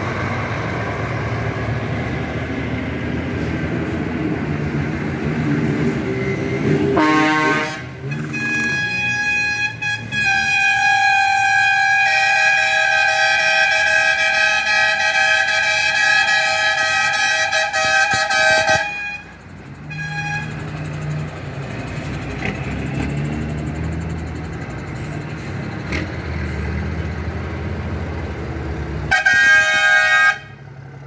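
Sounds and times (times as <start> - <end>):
truck engines passing: 0.0 - 31.0
truck air horn: 6.8 - 20.7, 29.1 - 30.6.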